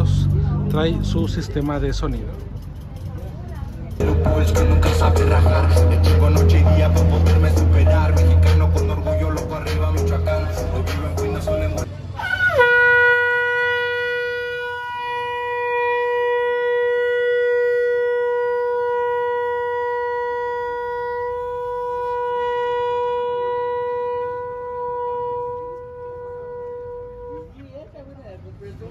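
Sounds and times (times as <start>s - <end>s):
conch shell trumpet note: 12.2s - 27.6s.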